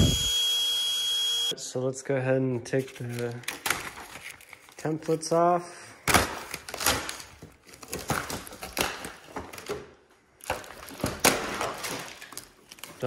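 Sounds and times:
paper and tape crinkling: 0:02.7 - 0:05.5, 0:06.1 - 0:09.8, 0:10.4 - 0:13.0.

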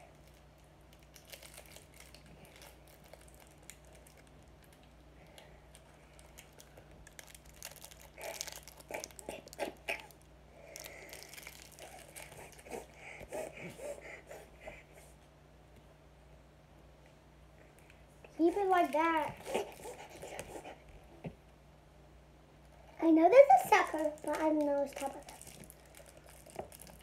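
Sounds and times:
plastic wrapper crinkling: 0:00.0 - 0:12.7, 0:23.6 - 0:27.0.

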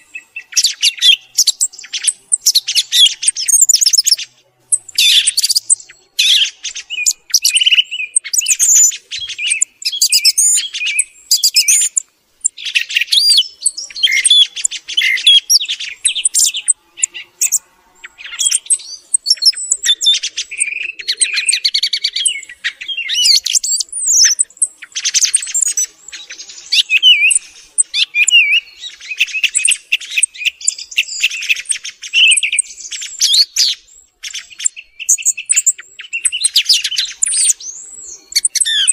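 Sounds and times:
thrush singing: 0:10.4 - 0:31.6.

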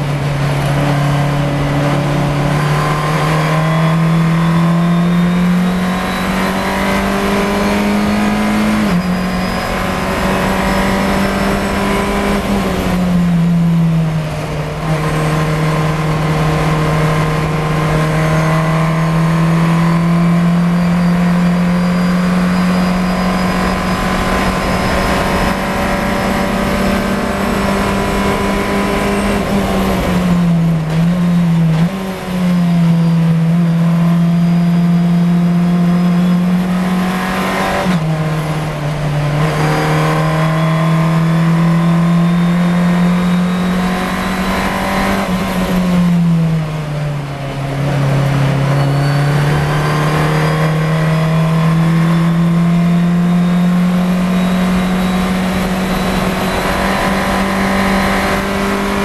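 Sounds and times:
race car engine pulling hard: 0:00.0 - 0:59.0.

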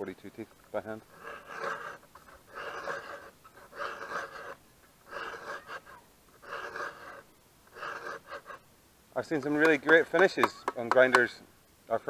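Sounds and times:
file rasping on chainsaw chain: 0:00.8 - 0:08.6.

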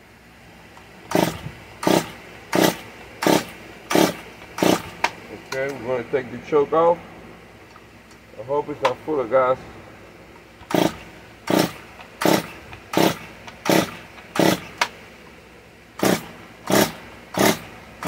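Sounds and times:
engine turning over: 0:01.0 - 0:05.2, 0:10.6 - 0:15.0, 0:16.0 - 0:18.0
chainsaw recoil starter pulls: 0:01.1 - 0:05.8, 0:10.6 - 0:14.9, 0:16.0 - 0:17.7.

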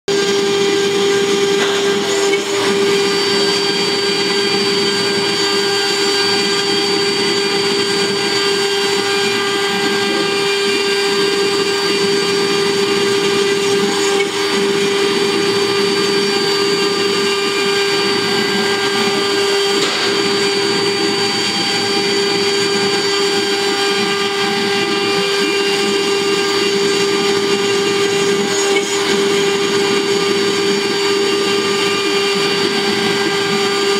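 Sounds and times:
bit cutting wood: 0:00.1 - 0:33.9
router spindle whine: 0:00.1 - 0:33.9.

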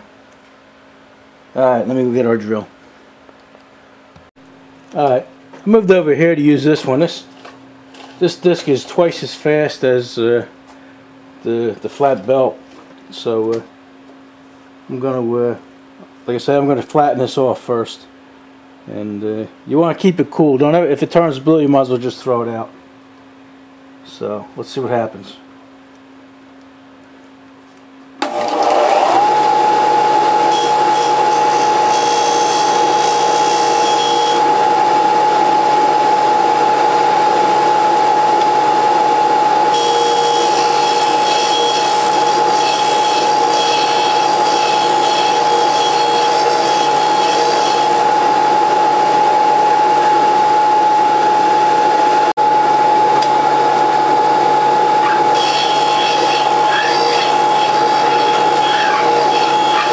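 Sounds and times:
disc sander whine: 0:28.2 - 0:59.9.

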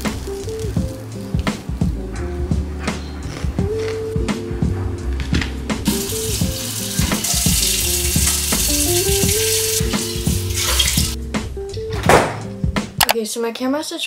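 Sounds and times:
background music: 0:00.0 - 0:14.0
faucet running into sink: 0:05.9 - 0:11.2.

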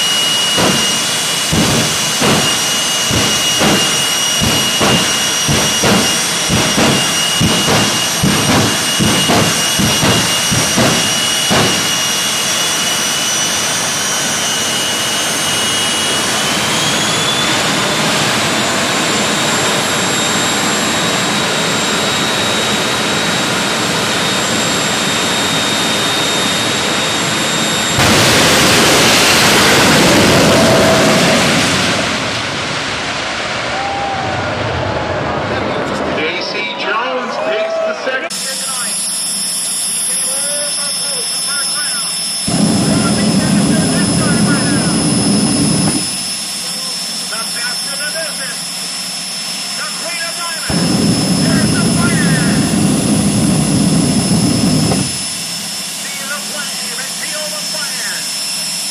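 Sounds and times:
afterburner blast: 0:00.0 - 0:16.4, 0:27.8 - 0:33.6, 0:42.1 - 0:46.6, 0:50.7 - 0:55.9
high turbine whine: 0:00.0 - 0:58.9
afterburner pops: 0:00.3 - 0:12.9, 0:28.0 - 0:30.8, 0:42.5 - 0:46.4, 0:50.7 - 0:55.6.

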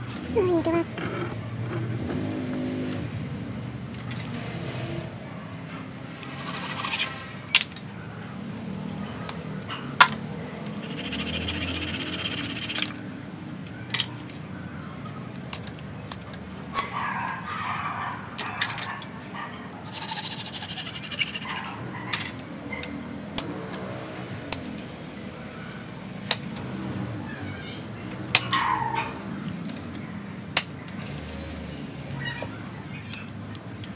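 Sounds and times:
sharp clicks and snaps: 0:15.0 - 0:17.4, 0:20.4 - 0:25.0
gloved hands scraping bark: 0:19.8 - 0:21.7.

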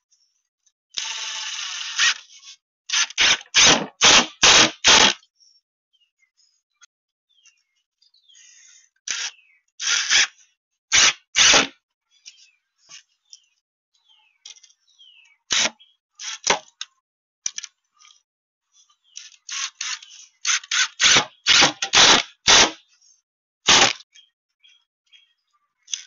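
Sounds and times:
birds chirping: 0:05.2 - 0:09.8, 0:12.1 - 0:16.0.

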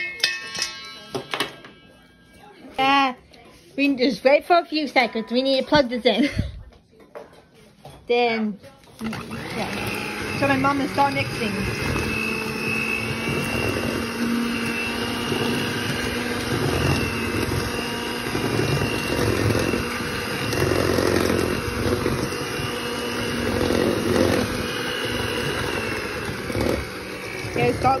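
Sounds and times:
electric mixer churning dough: 0:09.0 - 0:28.0.

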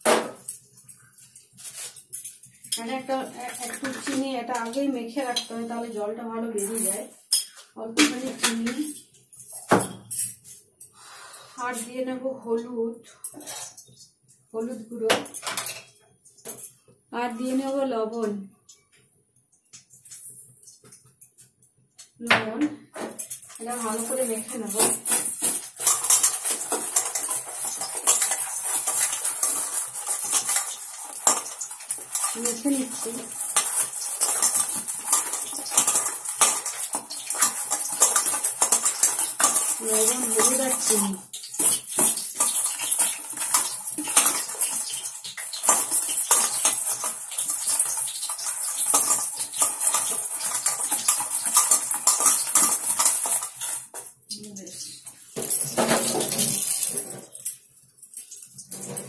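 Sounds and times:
food clinking on steel plate: 0:23.1 - 0:54.1.

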